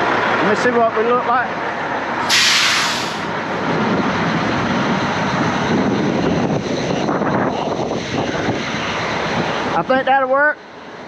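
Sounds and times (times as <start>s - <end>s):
diesel engine running: 1.7s - 7.0s.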